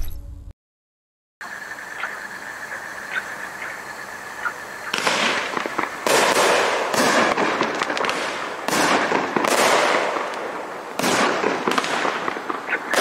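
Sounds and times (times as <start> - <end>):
hiss with fine crackles: 2.0 - 13.0
fireworks shots: 4.8 - 13.0.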